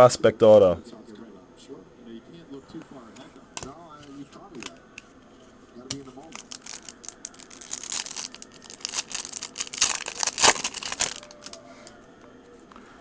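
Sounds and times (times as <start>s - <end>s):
foil wrapper crinkling and tearing: 6.2s - 11.6s.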